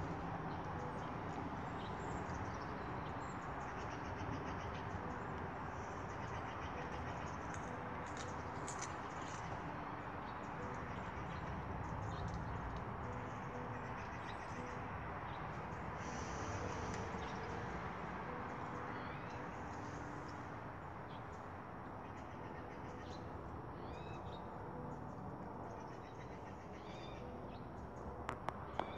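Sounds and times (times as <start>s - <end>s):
outdoor background noise: 0.0s - 28.9s.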